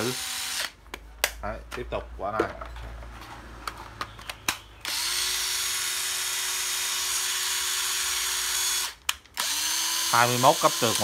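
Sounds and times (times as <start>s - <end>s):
cordless drill motor whine: 0.0s - 0.8s, 4.8s - 11.0s.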